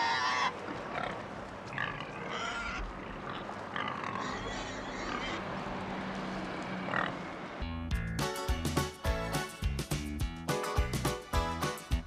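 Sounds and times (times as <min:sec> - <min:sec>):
pigs grunting and oinking: 0:00.0 - 0:05.4.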